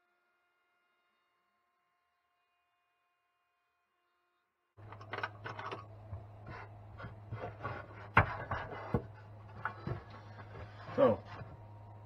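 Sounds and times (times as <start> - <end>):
low steady hum: 4.3 - 12.0
wood scraping: 4.8 - 11.7
hands rubbing wood: 6.0 - 11.7.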